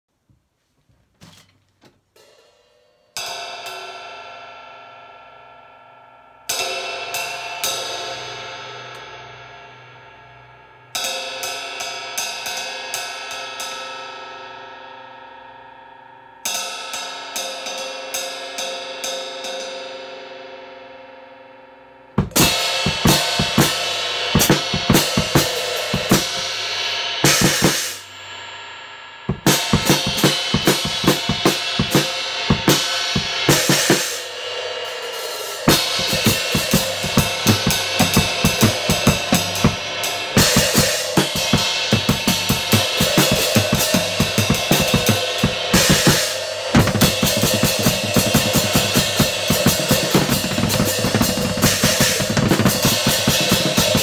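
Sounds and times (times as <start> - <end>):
drum kit playing: 22.2 - 28.2, 29.3 - 54.0
cymbal strikes ringing: 22.2 - 54.0.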